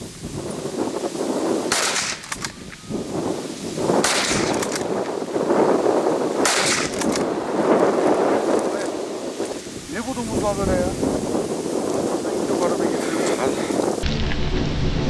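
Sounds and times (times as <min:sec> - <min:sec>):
gunshots with echo: 0:01.7 - 0:02.6, 0:04.0 - 0:05.0, 0:06.4 - 0:07.3.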